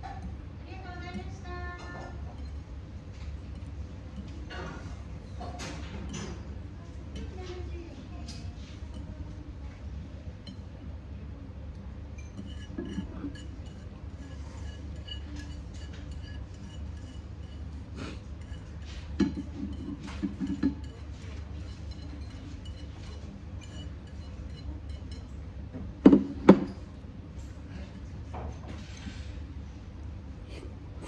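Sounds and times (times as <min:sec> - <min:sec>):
steady low hum: 0:00.0 - 0:31.0
chopsticks clinking on ceramic bowl: 0:01.0 - 0:06.5, 0:12.2 - 0:25.4.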